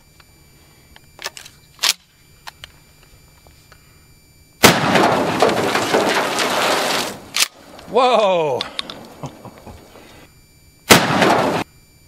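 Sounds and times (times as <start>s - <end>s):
shotgun blast: 4.6s - 7.7s, 10.9s - 11.7s.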